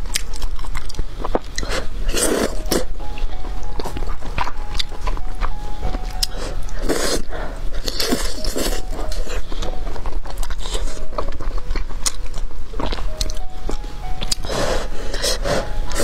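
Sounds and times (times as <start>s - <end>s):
chewing mouth noises: 0.0s - 2.8s, 6.2s - 14.5s.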